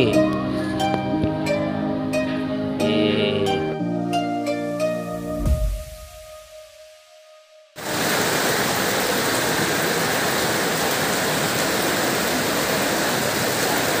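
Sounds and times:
heavy rain pouring: 7.8 - 14.0.

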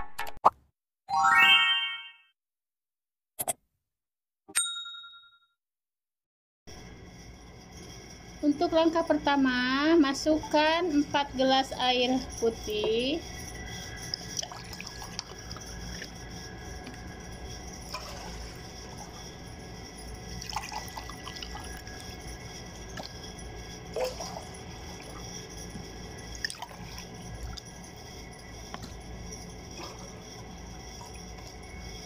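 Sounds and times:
water pouring into saucepan: 14.1 - 15.6, 20.4 - 22.1.

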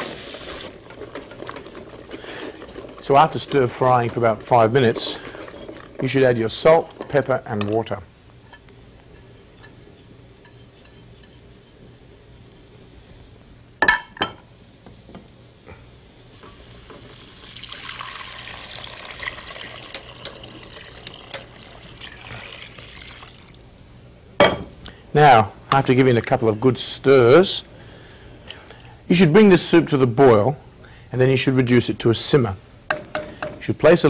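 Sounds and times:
water pouring into a pot: 0.0 - 7.2, 16.4 - 23.7.

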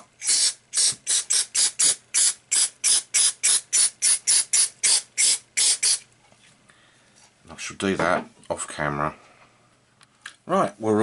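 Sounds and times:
aerosol spray hissing: 0.2 - 6.0.

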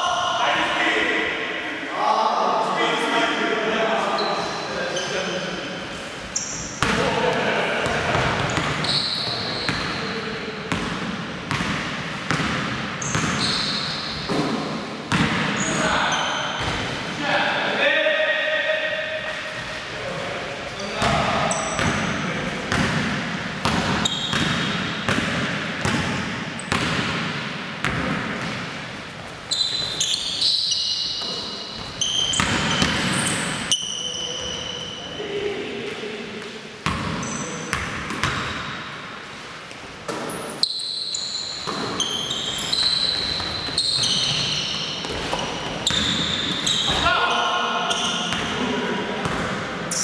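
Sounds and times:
players' voices: 0.0 - 11.3, 14.3 - 25.4, 32.2 - 38.4, 44.1 - 50.0
sneaker squeaks: 4.1 - 7.0, 8.2 - 10.3, 12.3 - 17.0, 20.8 - 22.8, 23.6 - 26.0, 26.6 - 27.0, 29.2 - 35.4, 36.8 - 38.9, 40.1 - 48.6.

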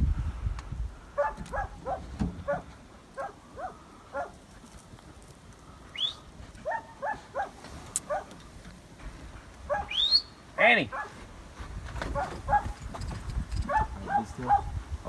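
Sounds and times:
dog yelping: 1.2 - 4.3, 6.6 - 8.3, 9.7 - 10.3, 10.9 - 11.2, 12.1 - 12.8, 13.7 - 14.7
dogs barking: 1.2 - 4.4, 6.6 - 8.4, 9.6 - 10.1, 10.9 - 11.2, 12.1 - 12.8, 13.6 - 14.8.

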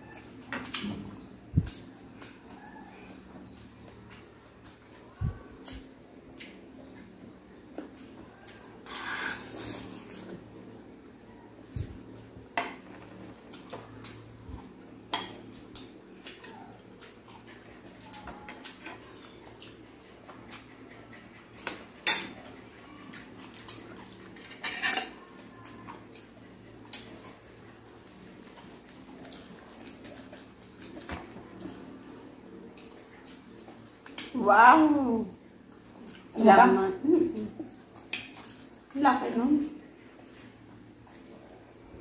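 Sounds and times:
cutlery clinking on plates: 24.4 - 25.2.

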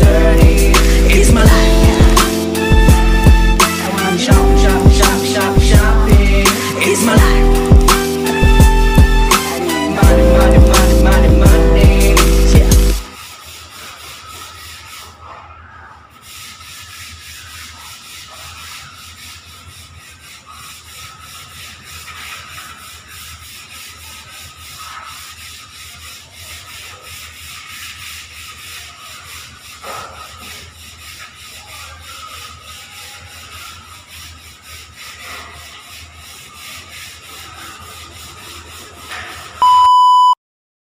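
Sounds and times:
sandpaper rubbing on wall: 0.0 - 39.6
loud electronic beep: 39.6 - 40.4.

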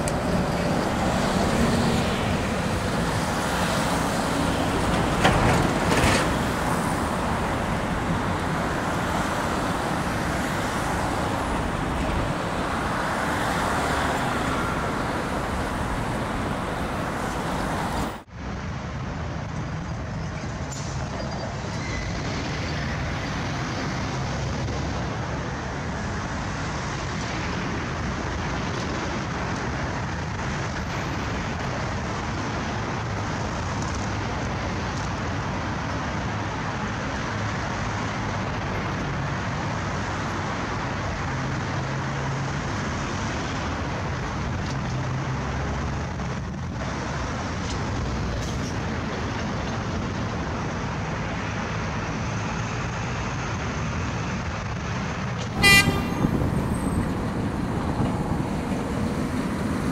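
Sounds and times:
traffic noise: 0.0 - 59.9
tram wheels rumbling on rails: 0.0 - 59.9
tram warning toot: 55.5 - 59.9.

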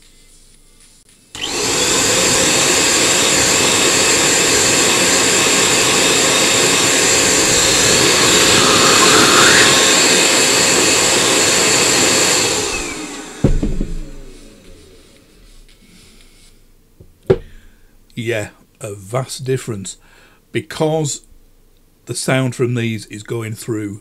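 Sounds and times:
electric air pump motor: 1.4 - 16.5
rush of blown air: 5.5 - 16.6.

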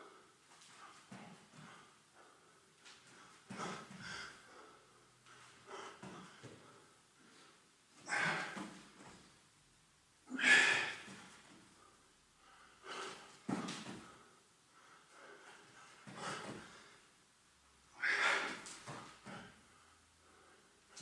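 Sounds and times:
man breathing hard: 0.0 - 9.0, 10.3 - 17.1, 17.9 - 21.0.

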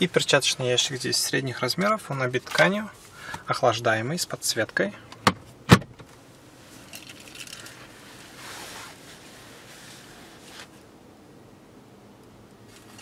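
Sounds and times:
glovebox lid thump: 5.2 - 6.0
faint rustling: 6.1 - 10.9.

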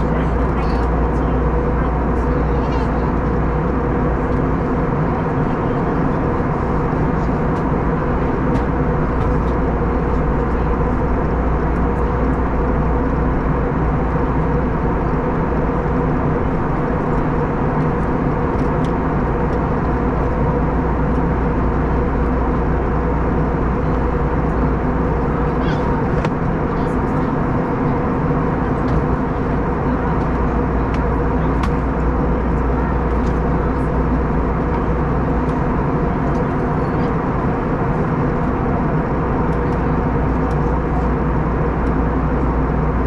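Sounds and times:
airplane cabin air rush and hum: 0.0 - 43.0.

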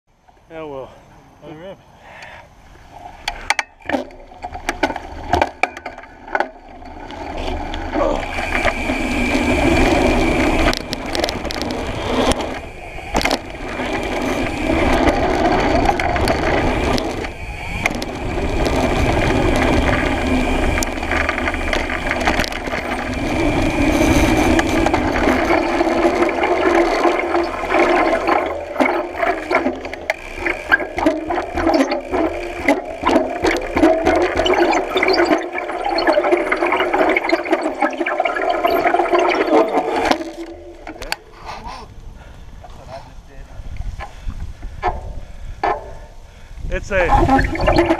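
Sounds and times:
gravel and bike rattles: 0.1 - 47.9
tyre rolling on dirt: 4.1 - 46.2.

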